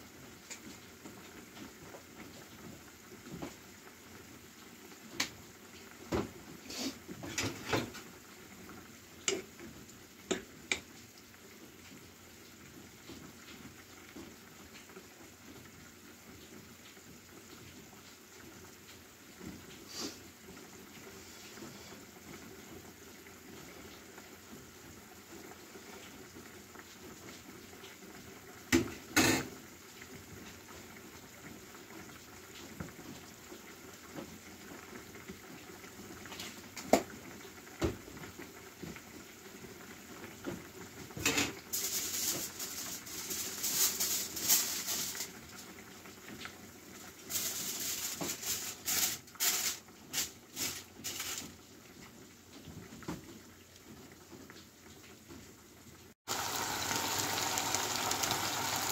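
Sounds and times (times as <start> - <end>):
stew bubbling in a pan: 0.0 - 58.9
aluminium foil crinkling: 41.7 - 45.3, 47.3 - 51.5.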